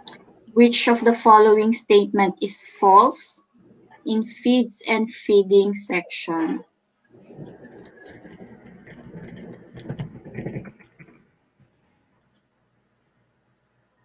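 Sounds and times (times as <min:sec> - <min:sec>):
scratchy rustling: 0:07.3 - 0:11.2.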